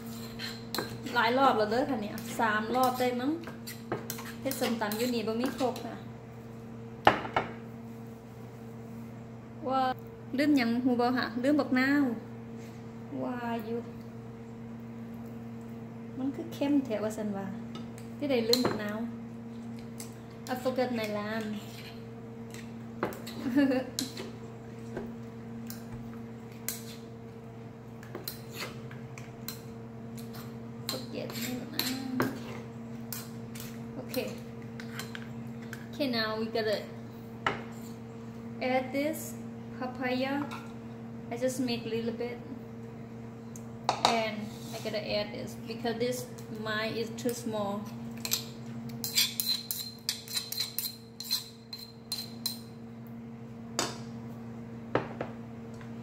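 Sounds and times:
metal spoon scraping in mortar: 0:00.0 - 0:01.2, 0:02.2 - 0:05.8, 0:30.2 - 0:33.8, 0:49.0 - 0:52.6
low electrical hum: 0:00.0 - 0:56.0.

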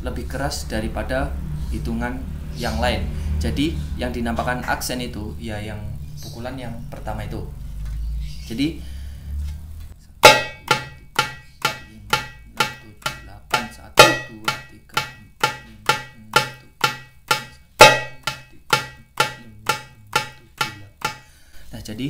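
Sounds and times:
darbuka finger strokes: 0:10.2 - 0:21.3.

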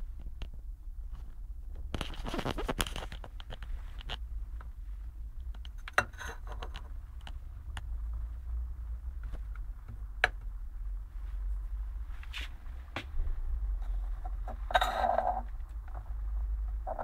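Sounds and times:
steady low hum: 0:00.0 - 0:17.0
electrode scraping glass jar: 0:14.5 - 0:15.5.

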